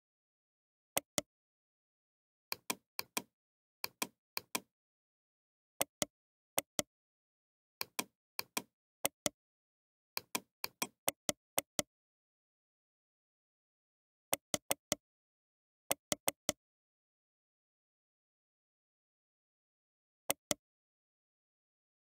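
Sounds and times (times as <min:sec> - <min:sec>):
computer mouse clicking: 0:02.5 - 0:04.7, 0:07.8 - 0:09.4, 0:14.4 - 0:15.0.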